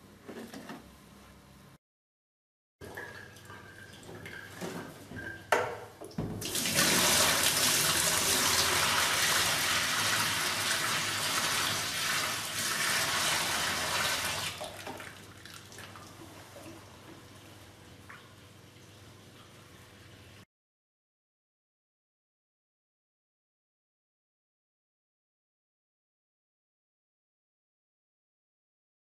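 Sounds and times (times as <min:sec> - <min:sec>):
water trickling and draining: 0:06.2 - 0:20.4
water gushing into a sink: 0:06.4 - 0:16.8.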